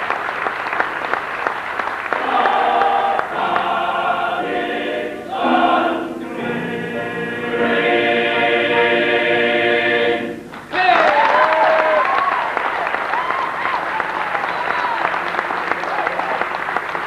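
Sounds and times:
male choir singing in harmony: 2.1 - 10.6.

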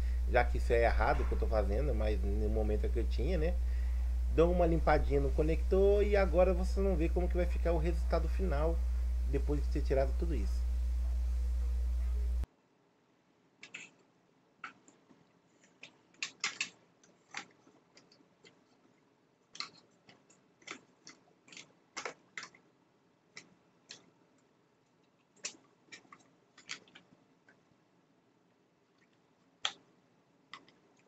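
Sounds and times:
plastic battery pack clicking: 15.8 - 18.1, 19.6 - 22.6.

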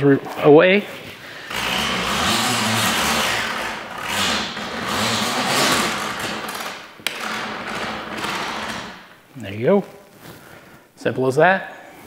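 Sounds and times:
hose rubbing onto reel: 1.4 - 9.0.

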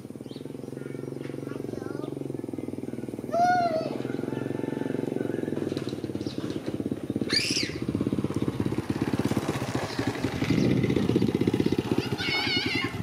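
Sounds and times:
small motorcycle engine running: 0.0 - 13.0
high rising and falling call: 7.2 - 8.0.

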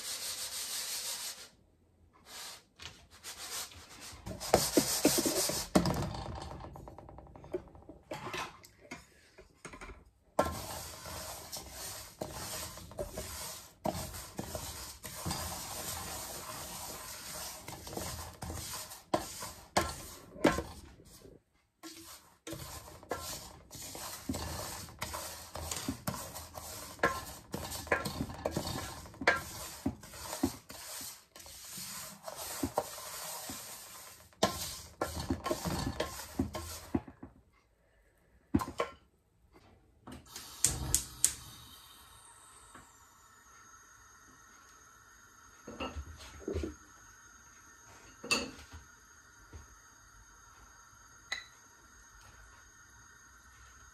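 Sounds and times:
spatula scraping seeds in metal pan: 2.2 - 6.0, 10.4 - 37.2.

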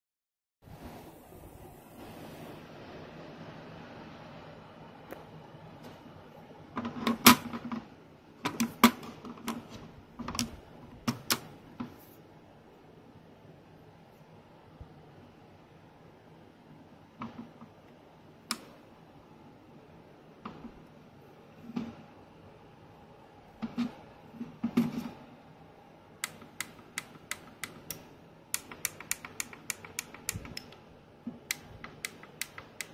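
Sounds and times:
plastic clicks and taps: 26.2 - 32.9.

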